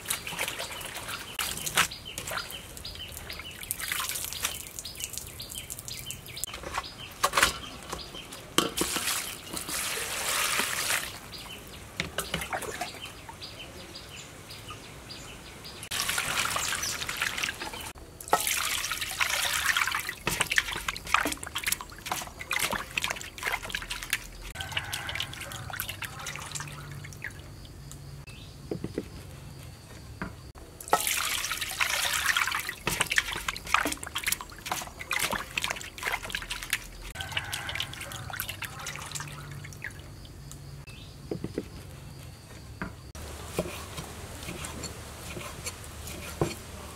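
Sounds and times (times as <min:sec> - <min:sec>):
water splashing in a basin: 0:00.0 - 0:06.8, 0:07.4 - 0:13.4, 0:15.9 - 0:27.8, 0:30.8 - 0:40.8.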